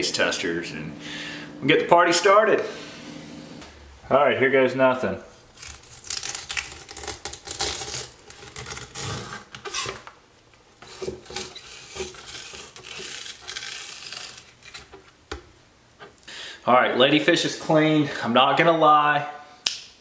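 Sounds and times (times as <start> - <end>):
knife cutting and scraping fish: 5.4 - 10.0, 10.8 - 15.1.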